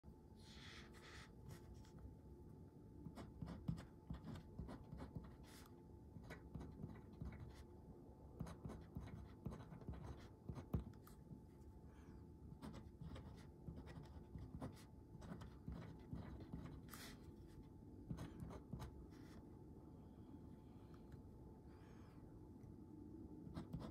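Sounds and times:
fountain pen scratching paper: 0:08.4 - 0:11.2, 0:12.6 - 0:17.2, 0:23.5 - 0:23.9.

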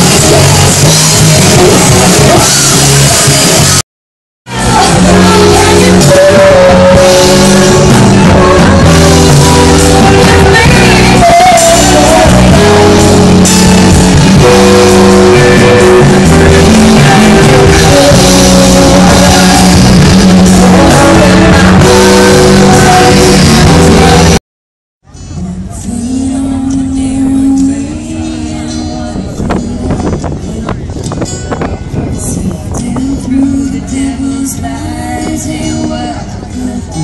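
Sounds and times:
drums: 0:00.0 - 0:03.8, 0:04.5 - 0:24.4, 0:25.1 - 0:37.0
electric guitars: 0:00.0 - 0:03.8, 0:04.5 - 0:24.4
person singing: 0:04.5 - 0:24.4, 0:25.2 - 0:31.4, 0:32.0 - 0:37.0.

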